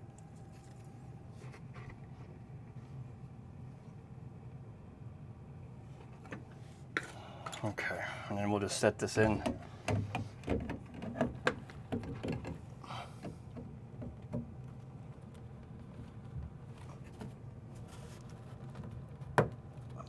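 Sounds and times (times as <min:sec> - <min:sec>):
low steady hum: 0:00.0 - 0:20.0
plastic fittings knocking and scraping: 0:09.4 - 0:12.6, 0:13.2 - 0:17.4.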